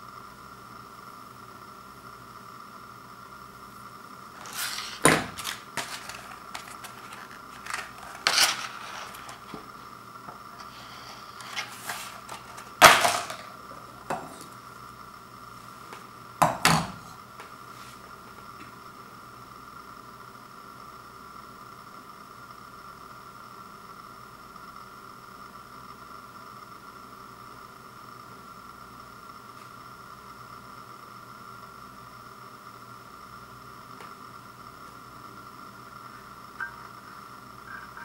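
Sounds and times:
plastic packaging crinkling: 0:04.4 - 0:09.6.

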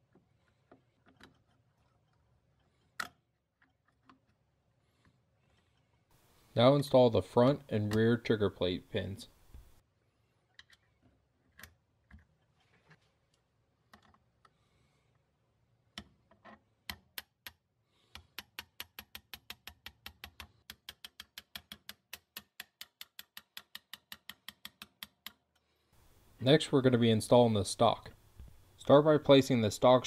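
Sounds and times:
hammer tapping steel punch: 0:18.2 - 0:25.4.

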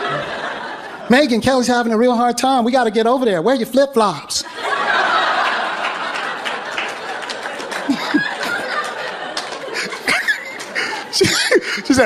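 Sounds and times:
audience laughing: 0:00.0 - 0:01.4, 0:04.4 - 0:12.0.

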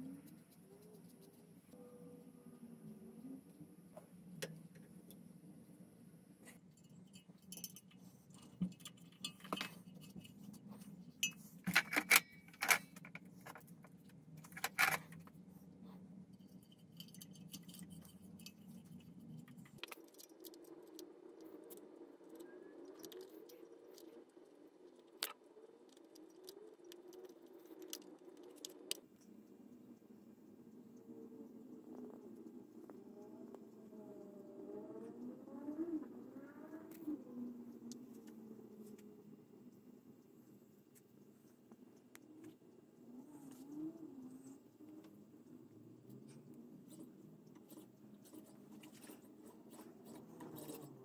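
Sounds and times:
metallic clinks and rattles: 0:16.4 - 0:20.6.

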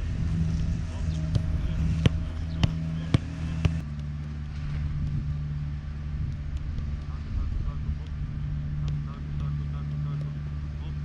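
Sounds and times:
low engine-like hum: 0:00.0 - 0:11.0
football kicked thuds: 0:01.3 - 0:03.8.

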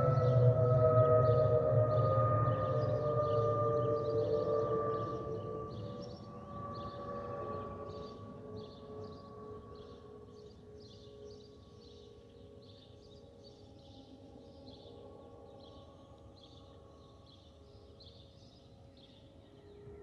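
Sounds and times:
low jet engine rumble: 0:00.0 - 0:10.3.

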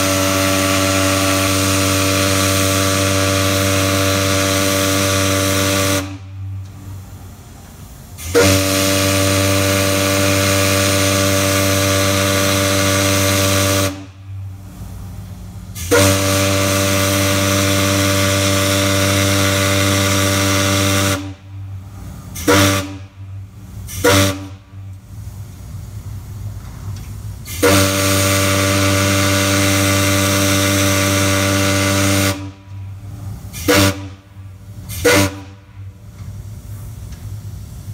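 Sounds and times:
deep steam whistle blasts: 0:00.0 - 0:06.6, 0:08.2 - 0:14.4, 0:15.8 - 0:21.8, 0:22.4 - 0:24.9, 0:27.4 - 0:35.9
steam hissing: 0:00.0 - 0:37.9.

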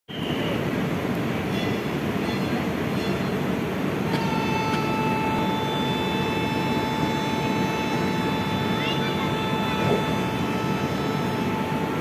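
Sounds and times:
train wheels rumbling on rails: 0:00.8 - 0:12.0
high-pitched tone: 0:04.1 - 0:12.0.

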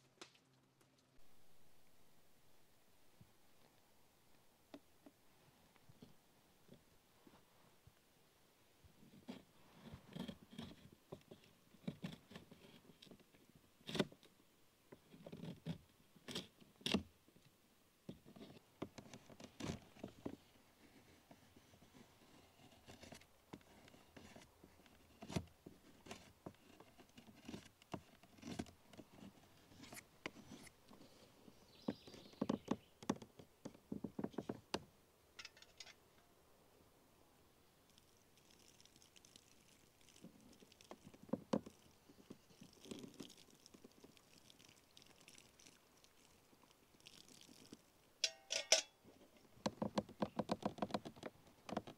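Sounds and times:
wood knocking and scraping: 0:31.8 - 0:34.8.

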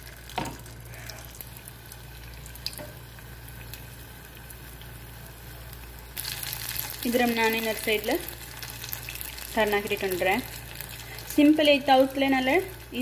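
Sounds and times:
batter sizzling in hot oil: 0:00.0 - 0:13.0
faint popping oil: 0:02.6 - 0:05.0.

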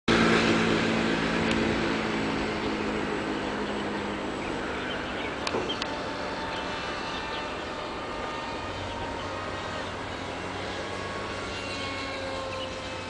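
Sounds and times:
distant engine drone: 0:00.1 - 0:13.0
low hum: 0:00.1 - 0:13.0.

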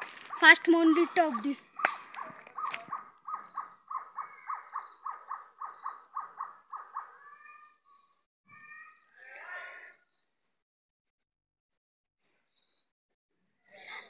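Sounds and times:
bird calling: 0:00.0 - 0:08.2.

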